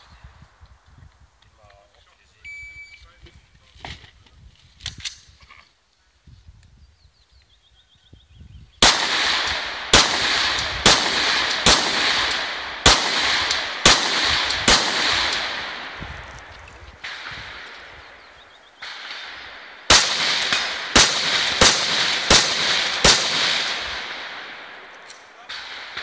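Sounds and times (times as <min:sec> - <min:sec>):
rifle shots echoing: 0:08.8 - 0:26.0.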